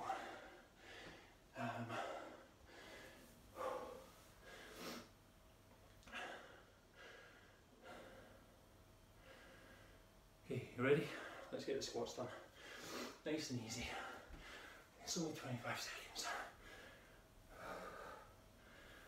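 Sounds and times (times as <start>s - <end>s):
man breathing hard: 0.0s - 5.2s, 6.0s - 8.6s, 9.2s - 10.1s, 12.4s - 13.2s, 13.8s - 15.0s, 16.5s - 19.0s.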